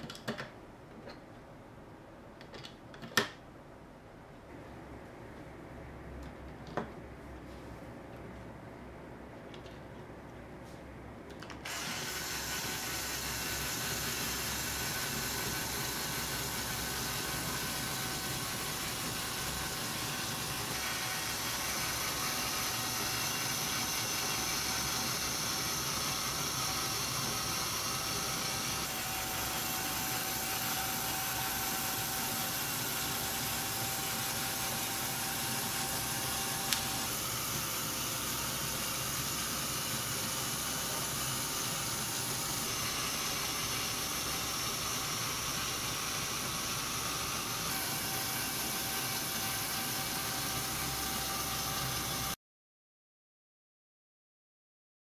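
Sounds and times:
toy motor and gears whirring: 11.6 - 52.4.

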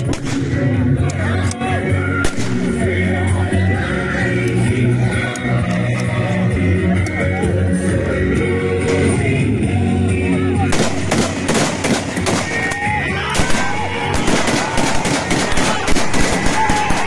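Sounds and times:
music: 0.0 - 17.0
rifle gunfire: 10.7 - 12.8, 13.4 - 17.0.

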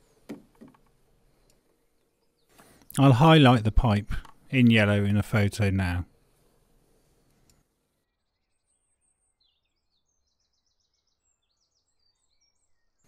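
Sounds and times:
faint high bird chirps: 7.0 - 13.0.

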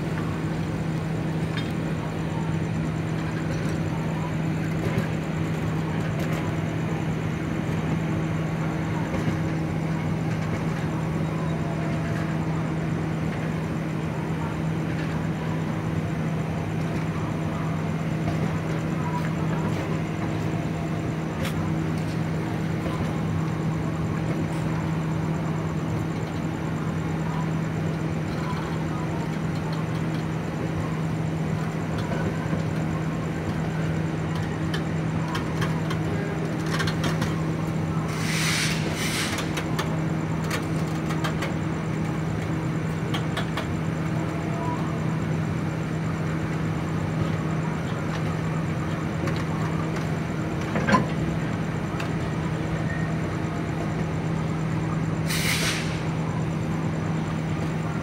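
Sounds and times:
steady low hum: 0.0 - 58.0
train coaches rumbling on rails: 0.0 - 58.0
short hiss: 38.1 - 39.5, 55.2 - 56.1.

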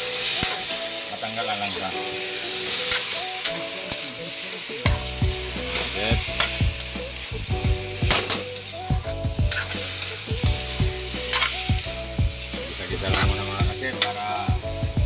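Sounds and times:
metal spatula scraping wok: 0.0 - 14.5
chicken sizzling in hot oil: 0.0 - 15.0.

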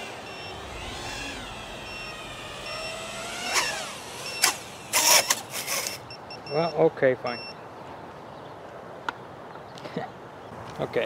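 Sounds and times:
drone hitting grass: 0.0 - 5.6
quadcopter motors whining: 0.0 - 7.4.

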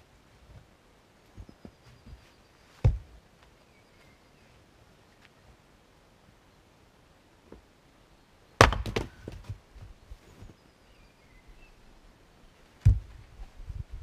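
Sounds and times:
axe hitting firewood: 2.8 - 3.1, 8.6 - 9.6, 12.8 - 13.2.

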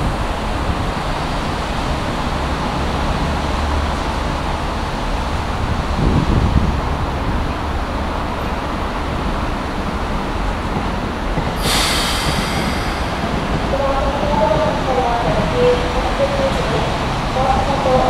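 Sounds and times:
electric train low hum: 0.0 - 18.0
train air hiss: 11.5 - 14.1.

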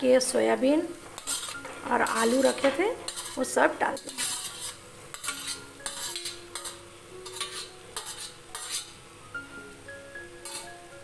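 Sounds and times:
metal spoon scraping steel bowl: 1.2 - 9.0, 10.4 - 10.8.

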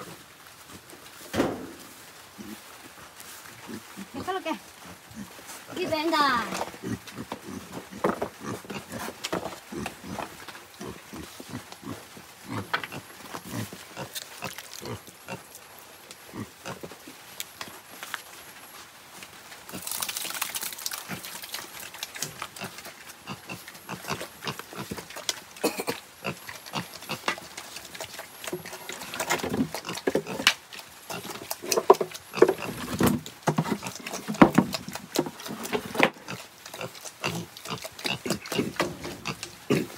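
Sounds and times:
piglets grunting: 36.1 - 39.9.

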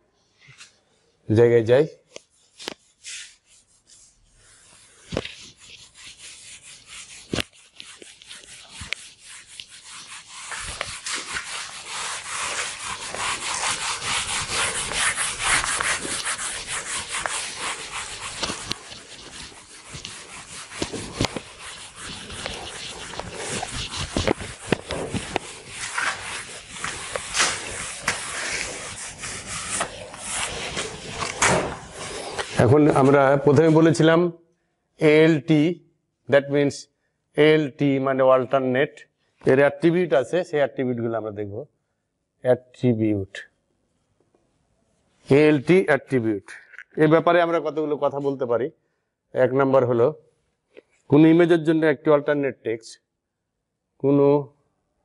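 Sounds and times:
eraser scrubbing whiteboard: 2.2 - 33.8.

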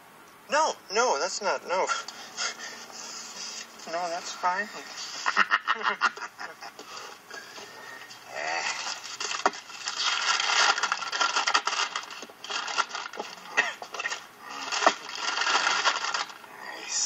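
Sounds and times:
paper bag crinkling: 8.6 - 16.5.

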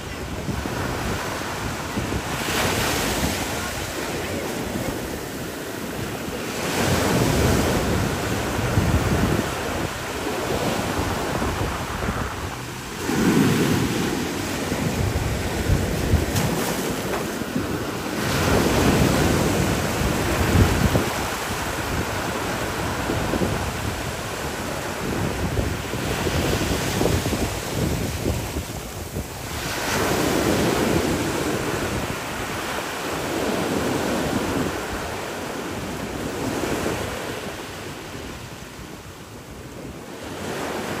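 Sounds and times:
ocean surf breaking over rocks: 0.0 - 41.0.

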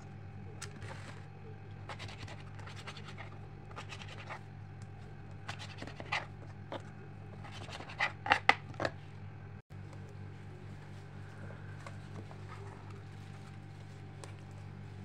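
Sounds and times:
steady low hum: 0.0 - 15.0
knife cutting on plastic board: 7.4 - 9.0.

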